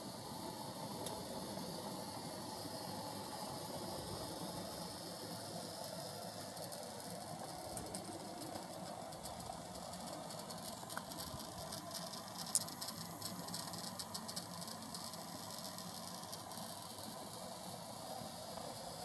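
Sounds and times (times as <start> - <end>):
rattling ticks: 5.8 - 17.4.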